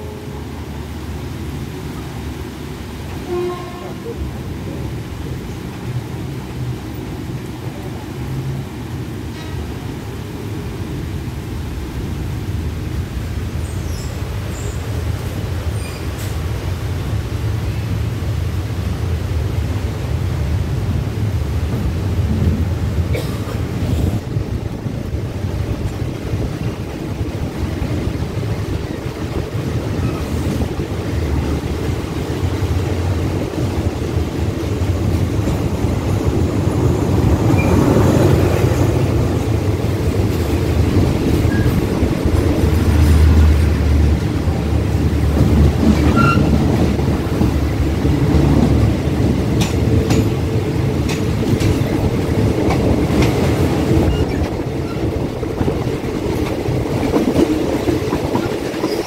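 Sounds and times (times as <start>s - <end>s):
diesel train passing: 0.0s - 59.0s
train wheels clacking: 45.2s - 59.0s.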